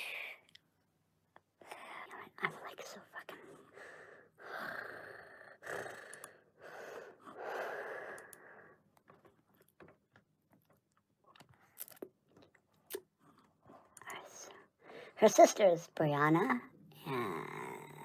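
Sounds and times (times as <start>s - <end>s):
faint clicks: 6.0s - 6.4s, 8.0s - 14.3s.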